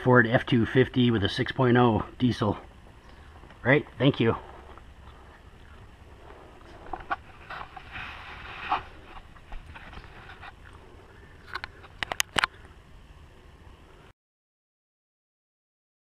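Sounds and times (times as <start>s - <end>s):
faint background hiss: 0.0s - 14.1s.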